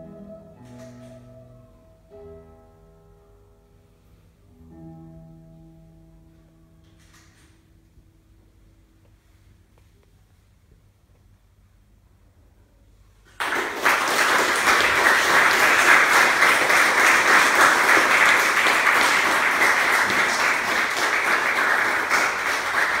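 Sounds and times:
audience applause: 13.3 - 23.0.

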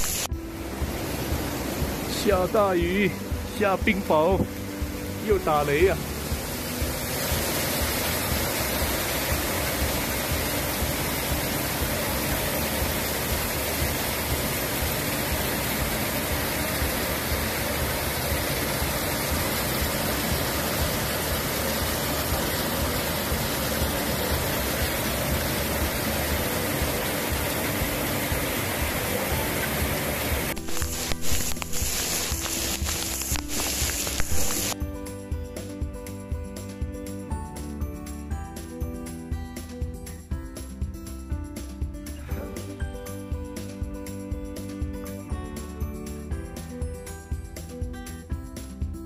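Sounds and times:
hail and heavy rain: 29.6 - 34.8.

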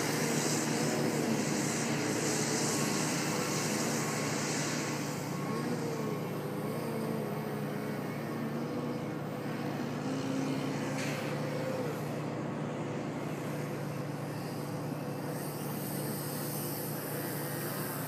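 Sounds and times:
model plane propeller droning: 0.0 - 18.0.

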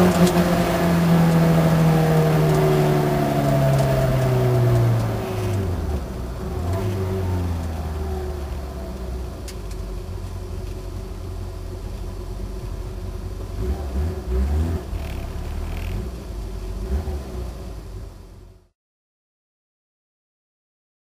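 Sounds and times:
car engine running and revving: 0.0 - 18.7.

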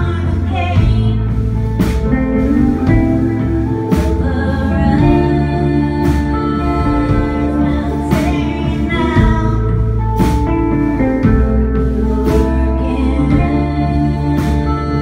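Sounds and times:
woman singing: 0.0 - 1.5, 2.8 - 15.0
electric bass: 0.0 - 15.0
electric guitar: 0.0 - 15.0.

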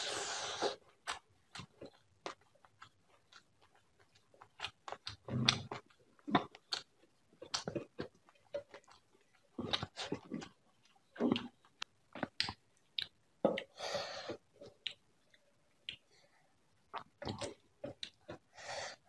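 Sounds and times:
chewing with wet mouth smacks: 0.8 - 13.7.

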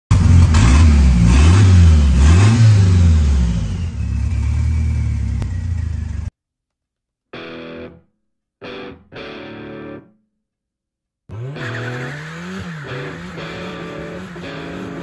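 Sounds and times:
car engine revving and idling: 0.1 - 6.3, 11.3 - 15.0.

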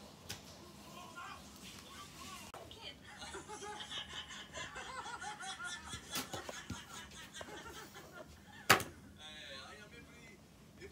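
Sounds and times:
people laughing: 3.0 - 9.2.

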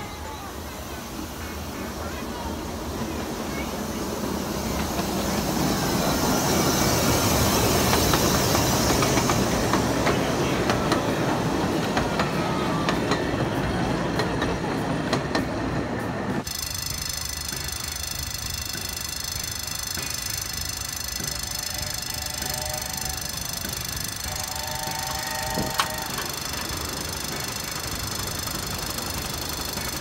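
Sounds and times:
miniature steam train rumbling: 0.0 - 30.0
wheels clacking on track: 0.2 - 30.0.

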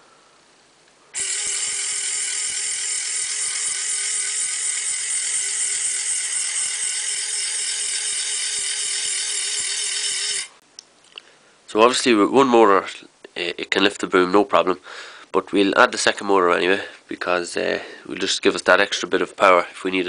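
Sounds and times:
gear motor whining with rattle: 1.2 - 10.5.

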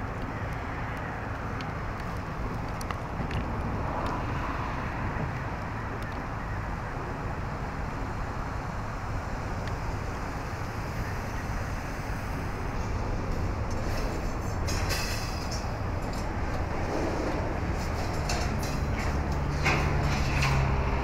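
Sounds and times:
freight train cars rumbling: 7.3 - 21.0.

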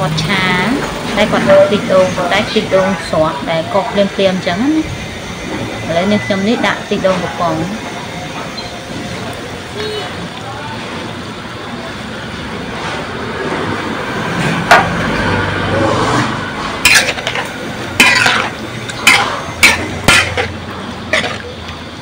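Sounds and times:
metal spatula clanking on wok: 16.8 - 21.6.

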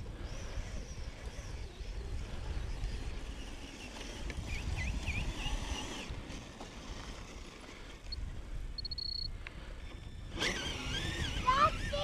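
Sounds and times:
wind rumbling on microphone: 0.0 - 12.0
quick high chirps: 8.8 - 9.3.

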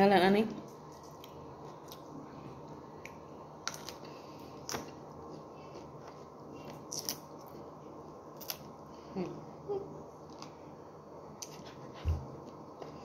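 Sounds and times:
low room hum: 0.0 - 13.0
broccoli stalk snapping and crunching: 6.9 - 7.2, 8.4 - 8.6.

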